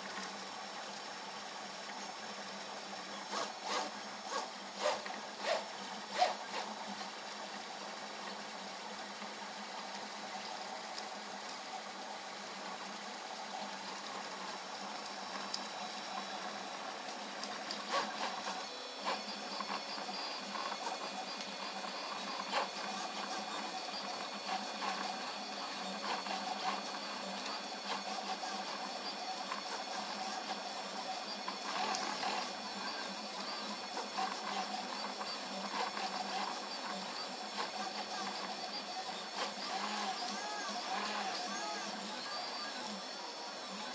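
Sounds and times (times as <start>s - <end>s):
stepper motors buzzing: 3.1s - 6.8s, 12.5s - 43.9s.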